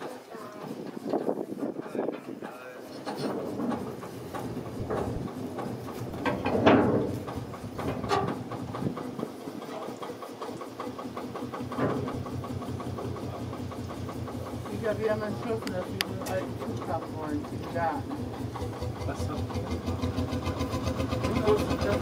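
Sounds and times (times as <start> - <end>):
locomotive engine running: 0.0 - 22.0
loud clatter: 2.9 - 10.2.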